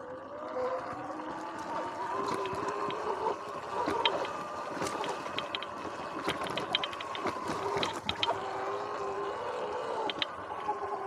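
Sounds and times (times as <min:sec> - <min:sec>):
chain and frame rattling: 0:02.2 - 0:08.5, 0:10.1 - 0:10.4.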